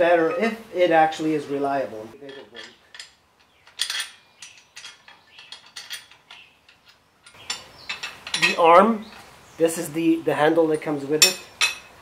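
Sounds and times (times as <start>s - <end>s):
steel parts clinking: 2.2s - 9.3s, 11.2s - 12.0s.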